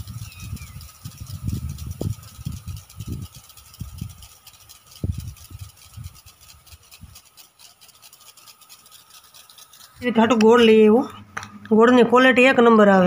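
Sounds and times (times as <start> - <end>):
wind buffeting microphone: 0.0 - 7.2
sprinkler water jets hissing: 0.0 - 12.5.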